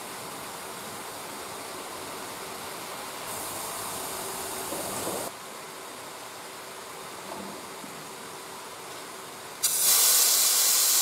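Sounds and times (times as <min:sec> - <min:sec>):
high-pitched hiss: 0:00.0 - 0:05.4, 0:09.6 - 0:11.0
gas torch flame hissing: 0:03.2 - 0:05.3, 0:09.6 - 0:11.0.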